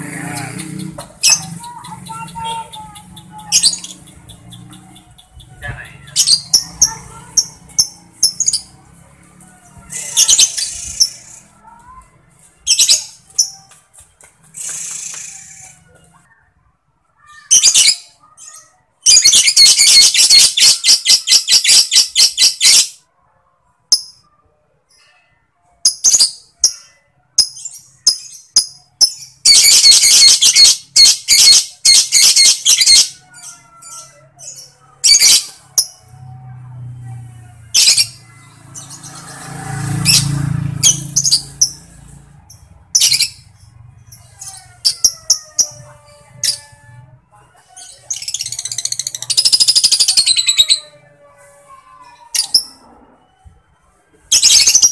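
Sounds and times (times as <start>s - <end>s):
bird chattering trills: 0.0s - 8.7s.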